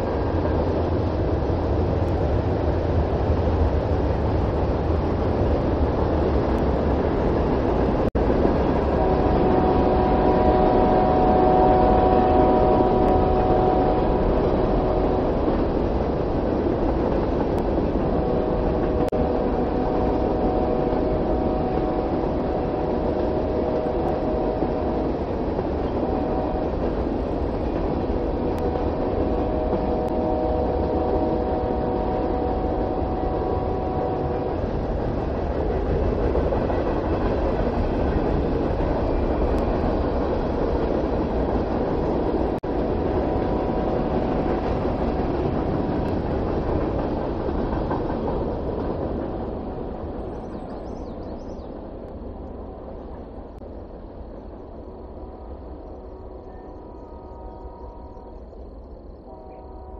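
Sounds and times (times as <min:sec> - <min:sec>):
train rumbling on rails: 0:00.0 - 0:59.9
locomotive air horn blasts: 0:08.9 - 0:15.3, 0:18.1 - 0:25.0, 0:28.5 - 0:34.8, 0:56.9 - 0:58.2, 0:59.3 - 0:59.9.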